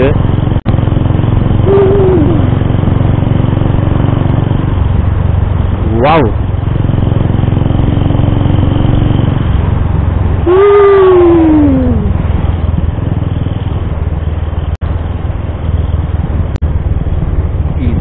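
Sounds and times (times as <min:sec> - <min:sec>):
motorcycle engine running: 0:00.0 - 0:18.0
wind rush on microphone: 0:01.4 - 0:18.0
rider calling out: 0:01.6 - 0:02.7, 0:10.5 - 0:12.2.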